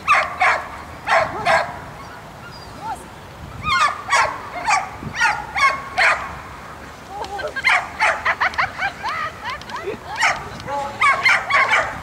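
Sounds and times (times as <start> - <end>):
dog barking: 0.1 - 1.8, 3.7 - 6.3, 7.6 - 8.3, 11.0 - 12.0.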